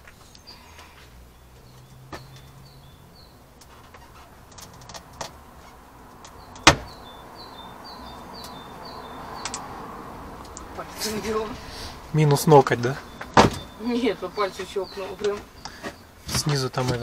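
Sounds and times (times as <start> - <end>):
car trim panel clicks and knocks: 6.6 - 7.0.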